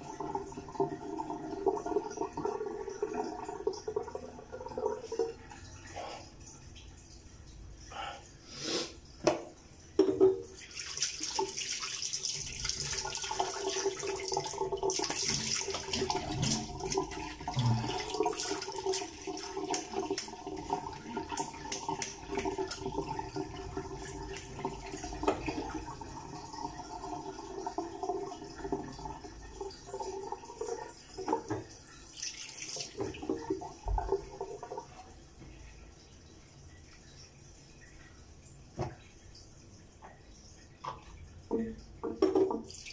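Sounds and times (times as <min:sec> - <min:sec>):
tap running into a sink: 0:09.2 - 0:11.6, 0:24.2 - 0:25.8, 0:31.2 - 0:31.8, 0:32.6 - 0:34.4, 0:38.7 - 0:39.0, 0:40.8 - 0:42.9.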